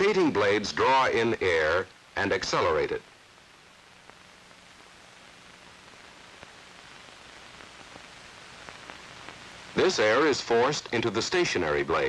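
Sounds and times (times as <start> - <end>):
film soundtrack hiss: 0.0 - 12.0.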